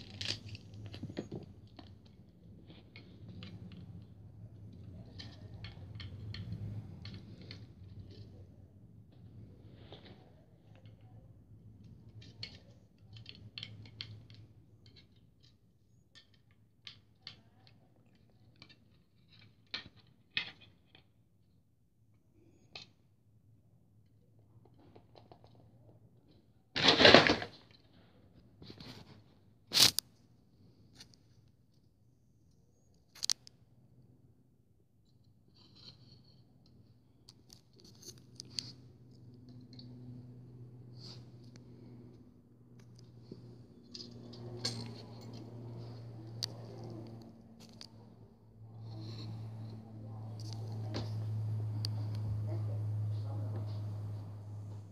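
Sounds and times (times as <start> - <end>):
small clicks and crinkles: 0.0 - 21.6, 24.0 - 33.7, 35.0 - 54.9
plastic model handling noise: 32.9 - 33.6
low steady hum: 35.4 - 54.9.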